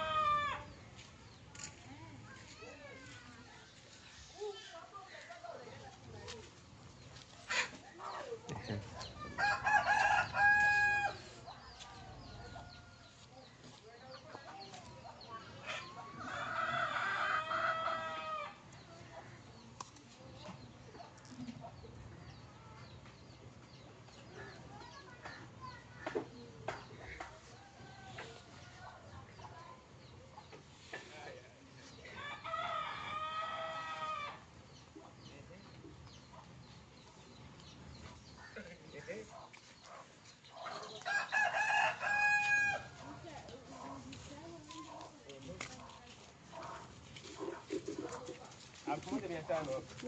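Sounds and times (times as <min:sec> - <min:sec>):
rooster crowing: 0:09.4 - 0:11.2, 0:16.2 - 0:18.6, 0:32.2 - 0:34.4, 0:41.0 - 0:42.9.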